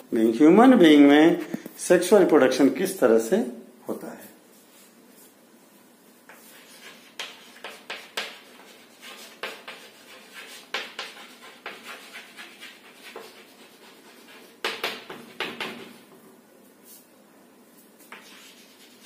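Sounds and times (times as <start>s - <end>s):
chalk scratching on chalkboard: 6.3s - 16.1s, 17.8s - 19.0s.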